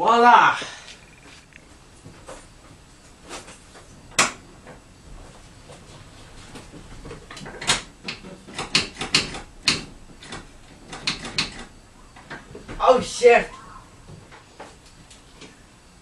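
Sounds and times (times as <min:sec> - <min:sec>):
clicks and knocks on a car: 0:06.5 - 0:12.8.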